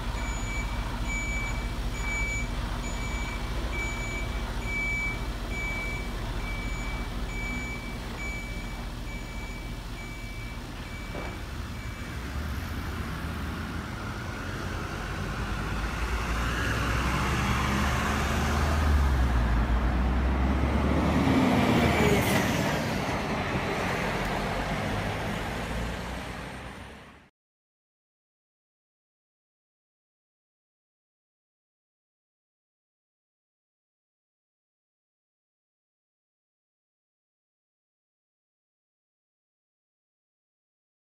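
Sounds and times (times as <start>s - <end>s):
simulated diesel truck engine: 0.0s - 27.3s
reversing alarm beeping: 0.2s - 12.3s.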